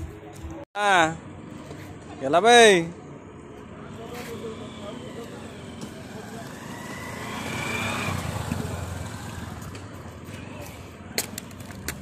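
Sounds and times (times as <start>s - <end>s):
motor vehicle passing: 2.8s - 12.0s.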